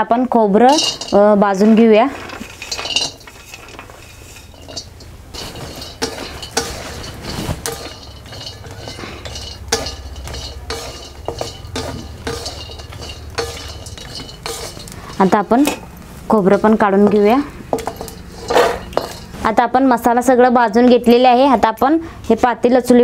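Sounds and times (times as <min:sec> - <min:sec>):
wooden spatula scraping iron pan: 0:00.6 - 0:19.6
clink from steel plate: 0:00.7 - 0:01.2, 0:02.5 - 0:15.4.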